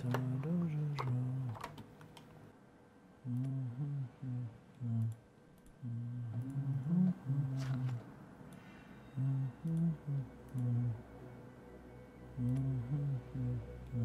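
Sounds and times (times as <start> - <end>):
low voice humming a tune: 3.2 - 5.2, 5.8 - 8.0, 9.1 - 11.1, 12.4 - 14.0.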